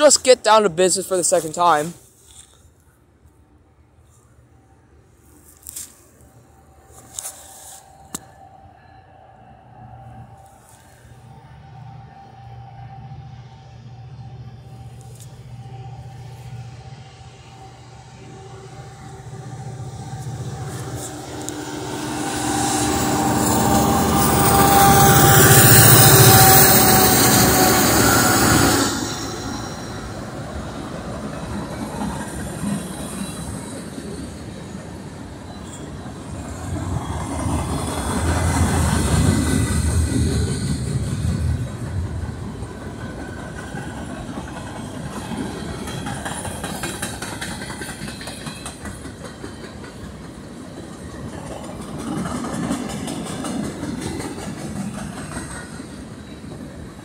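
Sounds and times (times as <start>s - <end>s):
diesel locomotive engines: 0.0s - 57.0s
freight car wheels rolling on rails: 35.6s - 56.6s.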